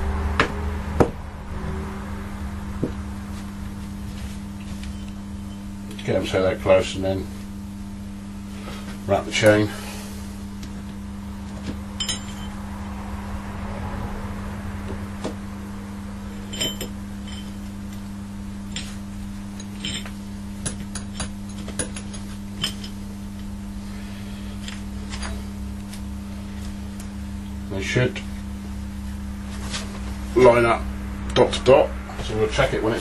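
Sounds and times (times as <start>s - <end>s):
steady low hum: 0.0s - 33.0s
metal chain clinking: 12.0s - 12.6s, 16.4s - 17.6s, 19.6s - 20.2s.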